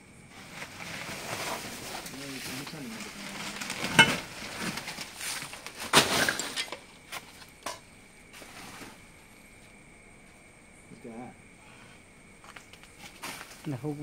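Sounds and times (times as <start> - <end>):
stones and junk knocking: 3.4 - 7.8.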